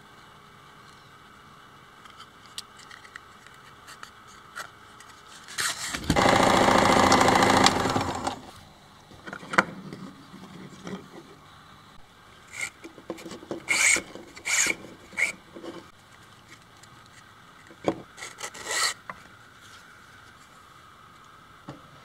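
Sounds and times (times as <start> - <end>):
sewing machine stitching: 6.1 - 8.5.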